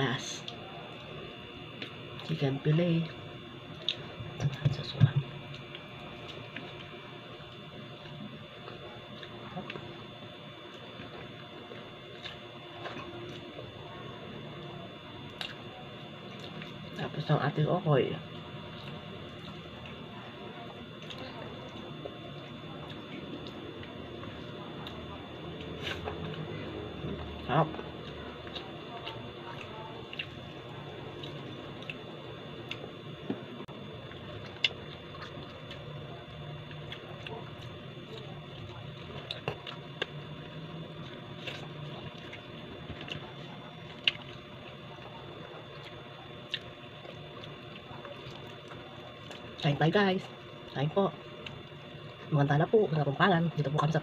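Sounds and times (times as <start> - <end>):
faint room hum: 0.0 - 54.0
soft chewing: 3.1 - 17.0, 18.3 - 53.0.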